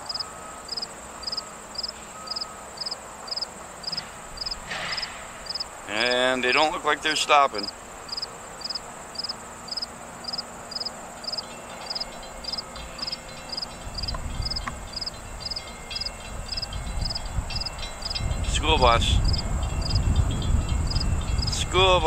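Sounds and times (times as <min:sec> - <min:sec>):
high insect buzz: 0:00.0 - 0:06.2, 0:07.6 - 0:18.2
crickets chirping: 0:00.0 - 0:22.0
diesel locomotive rumble: 0:00.0 - 0:22.0.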